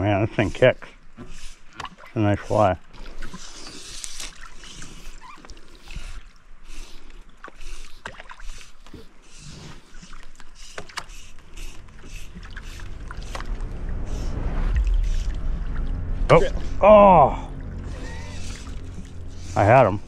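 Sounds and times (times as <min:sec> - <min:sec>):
water lapping against boat: 0:00.8 - 0:14.2, 0:17.3 - 0:20.0
low rumble: 0:11.3 - 0:20.0.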